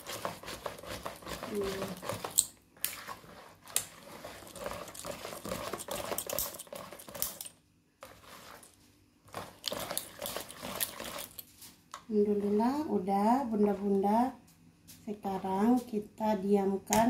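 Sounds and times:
wire whisk beating batter in bowl: 0.0s - 8.7s, 9.3s - 11.4s.

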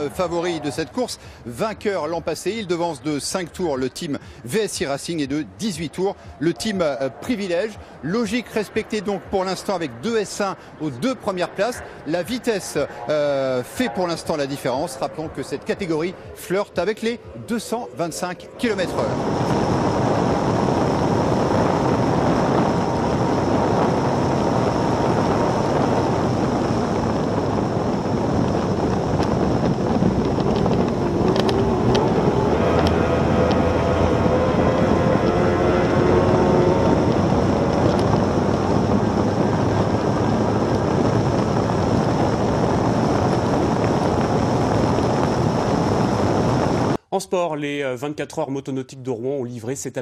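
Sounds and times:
wind and water rushing: 0.0s - 47.0s
powerboat engine: 11.4s - 47.0s.

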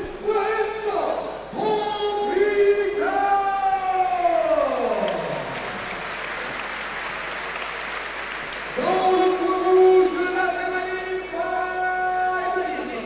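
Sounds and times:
announcer calling over loudspeaker: 0.0s - 5.0s, 8.8s - 13.0s
crowd cheering and applauding: 4.6s - 10.6s.

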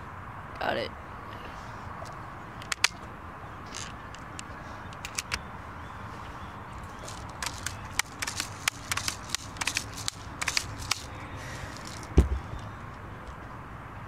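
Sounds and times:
handling clicks and crackles: 2.0s - 3.1s, 3.7s - 5.4s, 6.8s - 12.2s.

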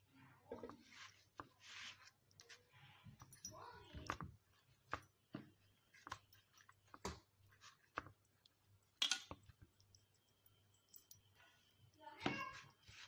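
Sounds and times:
chicken pressed in flour coating: 0.0s - 13.0s.

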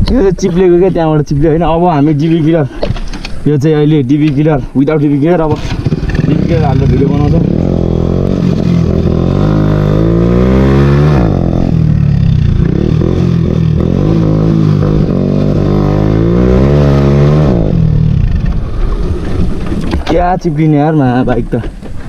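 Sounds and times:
motorcycle engine accelerating: 5.3s - 19.9s.

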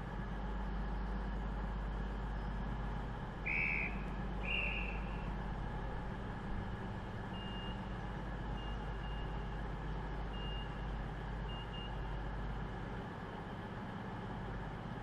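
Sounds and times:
diesel engines idling: 0.0s - 15.0s
door-warning beeps: 7.3s - 7.9s, 8.6s - 9.5s, 10.3s - 10.8s, 11.5s - 12.2s.

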